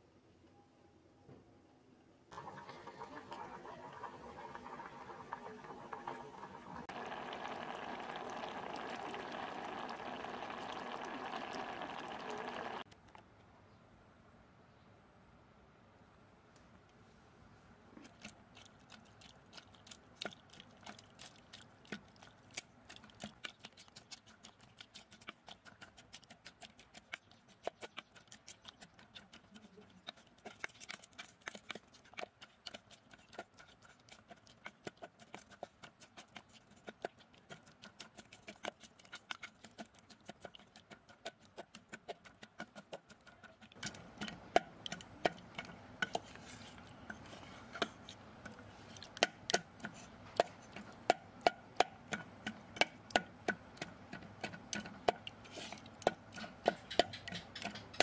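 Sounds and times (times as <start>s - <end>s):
wooden pestle pounding in metal pot: 39.4s - 46.2s, 49.1s - 55.3s, 56.0s - 58.0s.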